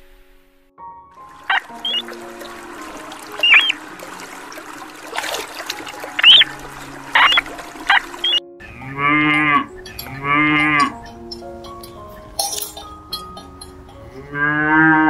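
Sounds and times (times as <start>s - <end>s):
background music: 0.0s - 15.0s
cow mooing: 8.6s - 11.1s, 14.1s - 15.0s.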